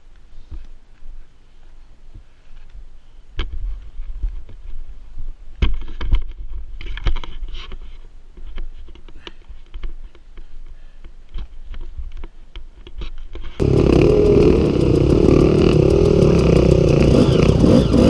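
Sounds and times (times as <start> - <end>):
dirt bike knocking and clattering: 13.6 - 18.0
low rumble: 13.6 - 18.0.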